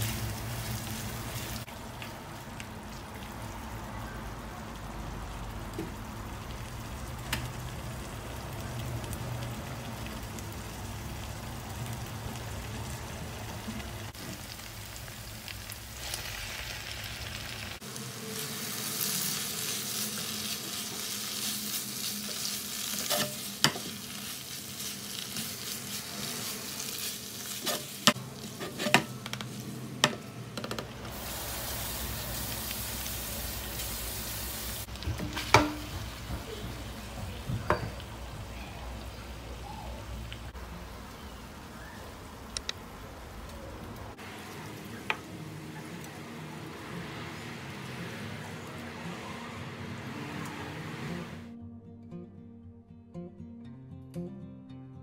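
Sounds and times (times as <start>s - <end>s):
meat sauce sizzling in a pan: 0.0s - 29.8s, 31.1s - 40.2s.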